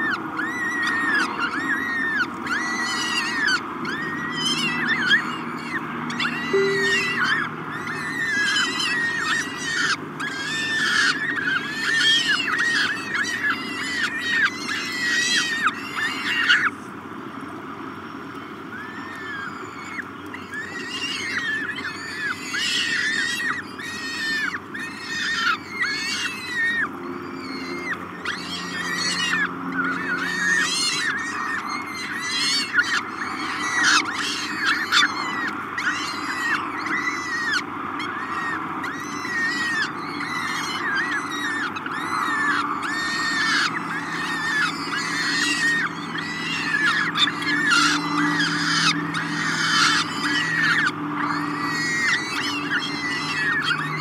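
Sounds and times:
falcon chicks begging calls: 18.6s - 54.0s.

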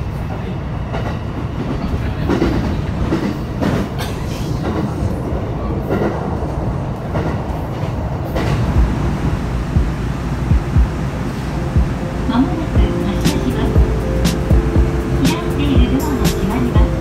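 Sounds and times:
train cabin rumble: 0.0s - 17.0s
low thumps: 8.4s - 16.0s.

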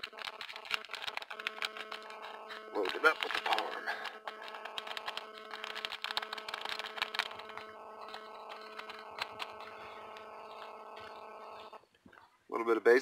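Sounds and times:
paper packet shaken and tapped: 0.0s - 9.7s
steady low hum: 0.0s - 12.2s.

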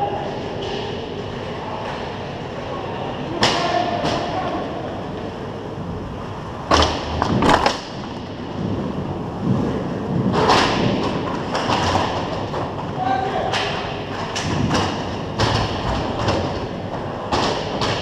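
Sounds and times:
echoing rink background: 0.0s - 18.0s
hockey sticks and puck knocking: 13.5s - 18.0s.

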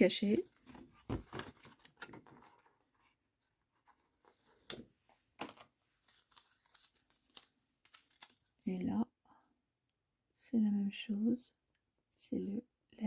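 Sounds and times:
paper rustling: 0.5s - 8.6s.

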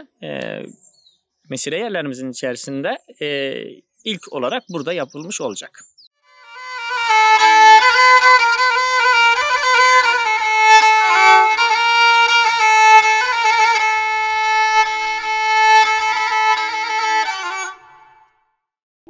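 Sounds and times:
solo fiddle melody: 6.2s - 18.4s.

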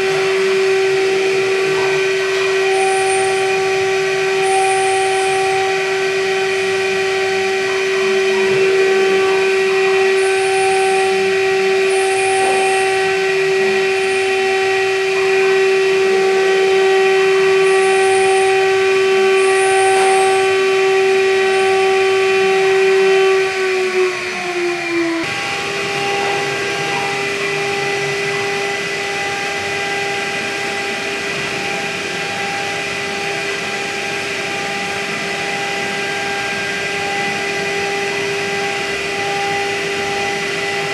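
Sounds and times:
milling spindle high whine: 0.0s - 40.9s.

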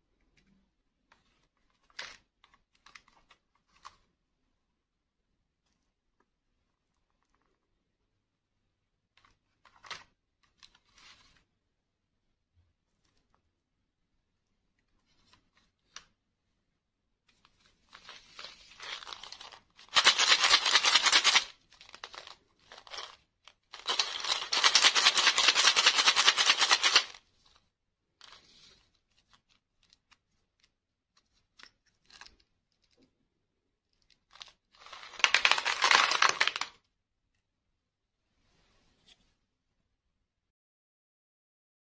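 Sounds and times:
paper tubes tearing: 17.9s - 27.2s, 34.3s - 36.7s
candies rattling onto plastic tray: 34.9s - 36.7s.

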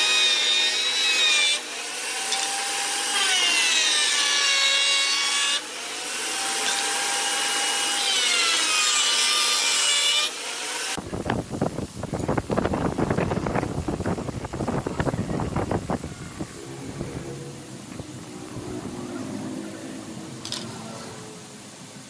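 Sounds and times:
rough scratchy noise: 13.2s - 22.0s
electric router whining: 13.3s - 22.0s.

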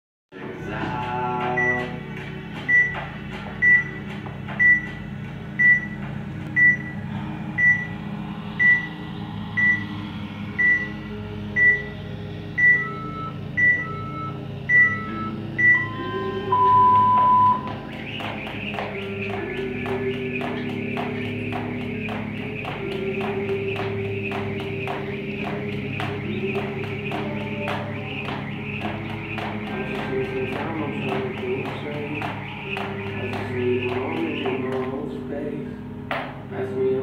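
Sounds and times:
steady low hum: 0.4s - 37.0s
lower tone: 0.5s - 37.0s
long lower beep: 6.6s - 7.0s, 7.6s - 8.0s, 8.6s - 9.0s, 9.6s - 9.9s, 10.6s - 12.0s, 12.6s - 20.3s
short high timer beeps: 12.6s - 17.7s.

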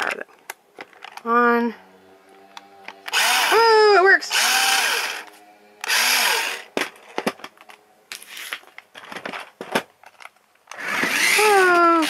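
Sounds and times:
toy car electric motor whirring: 2.4s - 6.7s, 10.7s - 12.0s.

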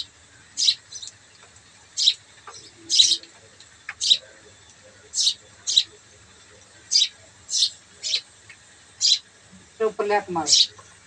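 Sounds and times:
bird chirping: 0.0s - 1.2s, 1.9s - 3.3s, 3.9s - 6.0s, 6.8s - 8.3s, 9.0s - 9.3s, 10.2s - 10.8s.

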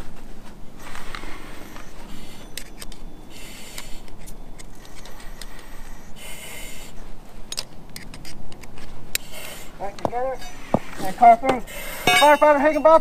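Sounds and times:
buckles clicking and clinking: 1.0s - 6.0s, 7.4s - 10.6s, 11.5s - 13.0s.

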